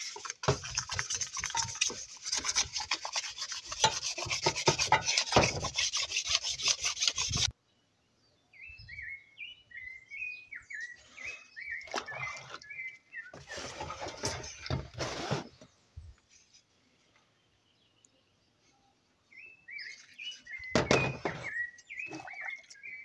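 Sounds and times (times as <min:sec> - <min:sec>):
water sloshing: 0:00.0 - 0:06.6
sandpaper rubbing: 0:00.0 - 0:07.5.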